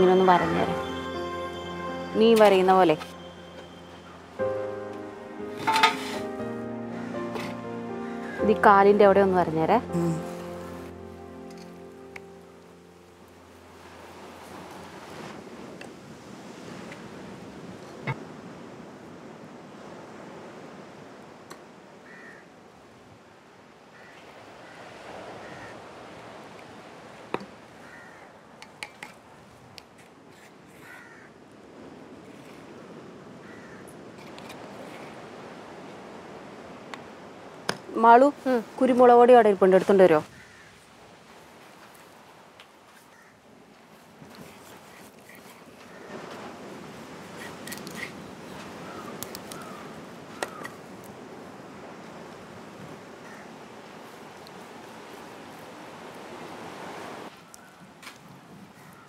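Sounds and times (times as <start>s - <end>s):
steady outdoor hiss: 0.0s - 59.0s
crows cawing: 22.0s - 22.5s, 23.9s - 25.9s, 27.8s - 28.4s, 30.8s - 31.4s, 33.4s - 34.0s, 40.3s - 40.8s, 43.1s - 43.4s, 45.8s - 46.3s, 48.6s - 50.8s, 53.2s - 53.6s, 58.8s - 59.0s.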